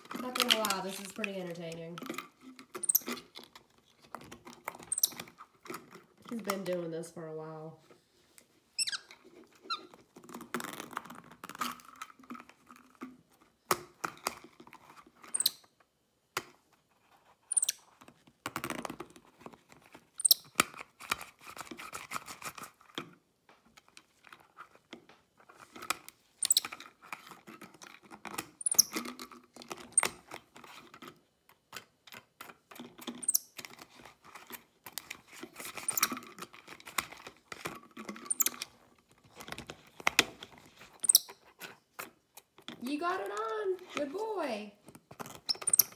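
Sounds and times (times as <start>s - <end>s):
monkey squeaking: 2.8s - 3.2s, 4.9s - 5.2s, 8.8s - 9.9s, 15.3s - 15.6s, 17.5s - 17.8s, 20.2s - 20.4s, 26.4s - 26.7s, 28.6s - 29.0s, 33.2s - 33.4s, 35.9s - 36.1s, 38.2s - 38.6s, 41.0s - 41.4s, 45.5s - 45.9s.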